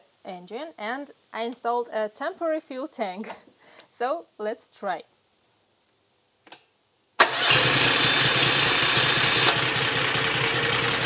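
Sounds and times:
engine starting and running: 7.2s - 11.0s.

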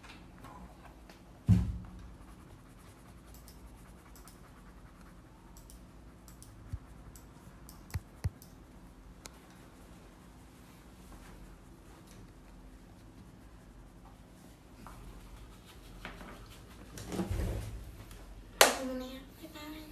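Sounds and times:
dull thump: 1.4s - 2.0s
crayons scratching on paper: 2.1s - 8.4s, 11.4s - 17.1s.

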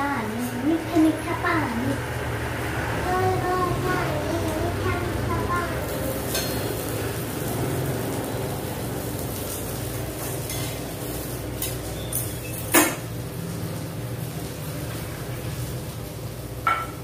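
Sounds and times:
flatbread sizzling in a pan: 3.7s - 17.0s
metal spatula clinking on pan: 6.3s - 6.7s.

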